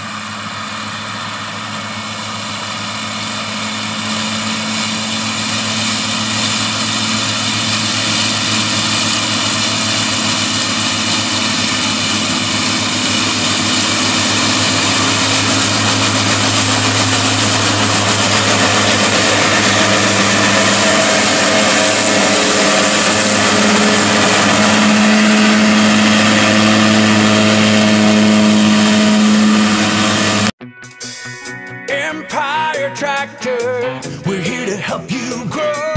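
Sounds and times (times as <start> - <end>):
tractor engine running under load: 0.0 - 30.6
mower drive whine: 0.0 - 35.8.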